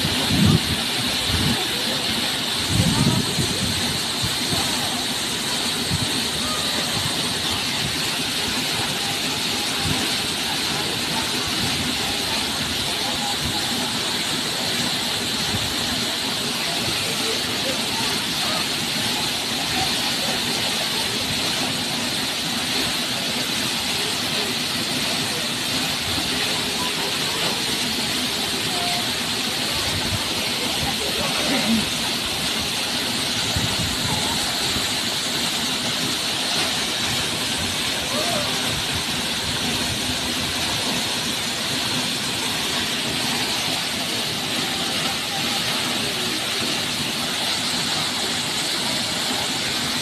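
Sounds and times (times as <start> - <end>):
waterfall crashing into pool: 0.0 - 50.0.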